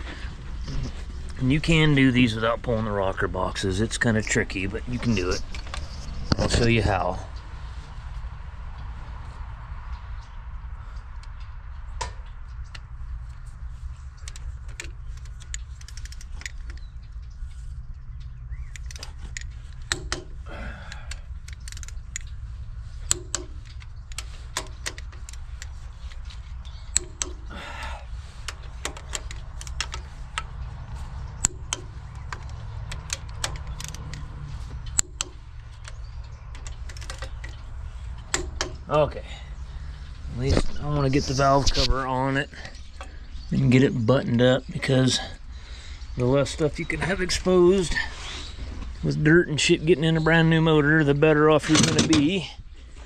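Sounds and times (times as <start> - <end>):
low hum: 0.0 - 53.0
hand tools clinking on metal: 51.5 - 52.6.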